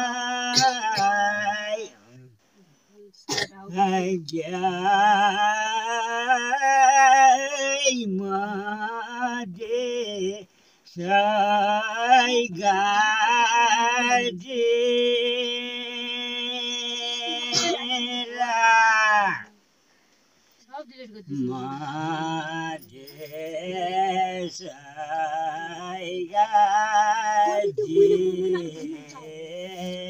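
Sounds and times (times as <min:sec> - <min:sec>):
man singing unaccompanied: 0:00.0 - 0:02.4, 0:03.4 - 0:19.6, 0:21.3 - 0:30.0
man breathing: 0:10.5 - 0:10.9.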